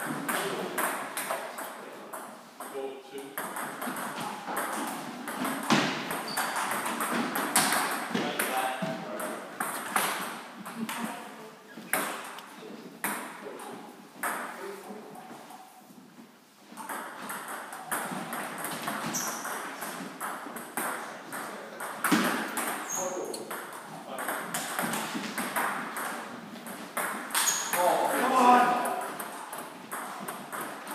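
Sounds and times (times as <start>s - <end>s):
table tennis balls clicking: 3.4s - 8.2s, 28.7s - 30.9s.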